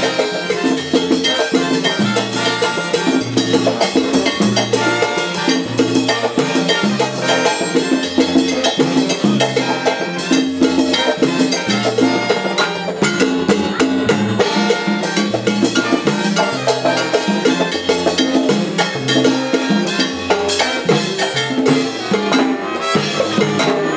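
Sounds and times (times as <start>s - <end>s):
bass line: 0.0s - 23.9s
horns and trumpet: 0.0s - 23.9s
piano: 0.0s - 23.9s.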